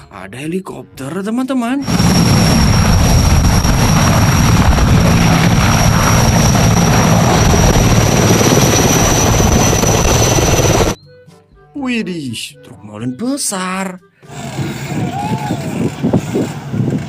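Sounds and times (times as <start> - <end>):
helicopter rotor beat: 1.8 - 11.0, 14.3 - 17.0
high turbine whine: 1.8 - 11.0.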